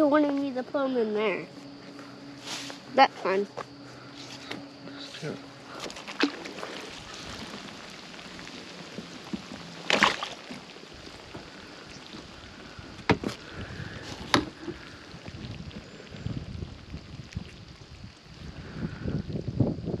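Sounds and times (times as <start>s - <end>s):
water swishing from paddling: 5.4s - 15.8s
sharp knocks on kayak: 13.0s - 13.4s.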